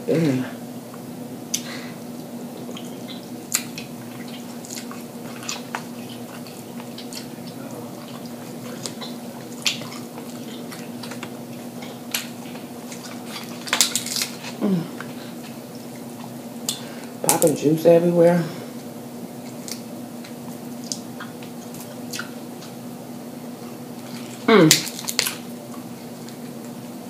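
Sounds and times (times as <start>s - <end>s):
chewing: 1.5s - 16.8s, 19.3s - 22.8s, 23.6s - 26.8s
crab shell crackling: 2.8s - 16.4s.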